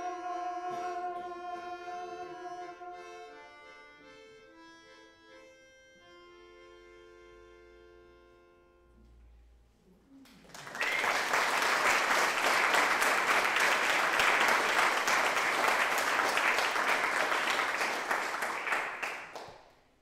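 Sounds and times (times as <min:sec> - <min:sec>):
audience applause: 0:10.3 - 0:19.6.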